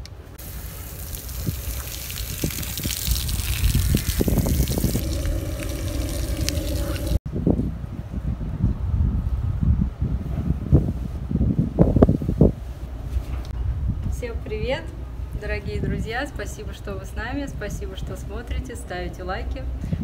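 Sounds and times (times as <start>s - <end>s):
water running and splashing: 0.4s - 7.2s
low rumbling noise: 0.4s - 7.5s
steady tonal hum: 3.0s - 7.2s.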